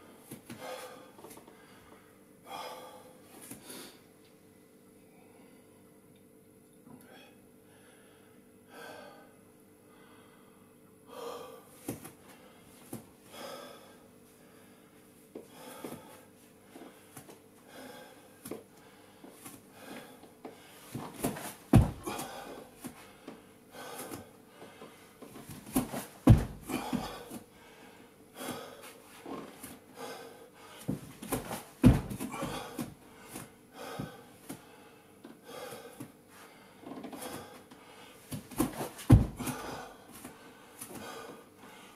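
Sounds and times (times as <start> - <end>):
man breathing hard: 0.0 - 4.1, 7.0 - 41.9
heavy thumps: 21.0 - 22.4, 25.6 - 27.3, 30.9 - 33.0, 38.4 - 39.8.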